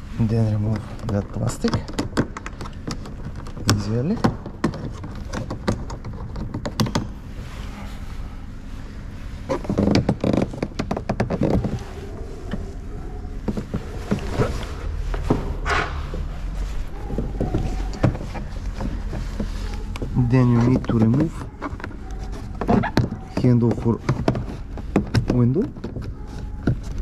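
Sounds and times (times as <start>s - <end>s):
plastic scraping rustles: 0.0s - 27.0s
clicks and knocks on plastic trim: 0.7s - 7.2s, 17.0s - 27.0s.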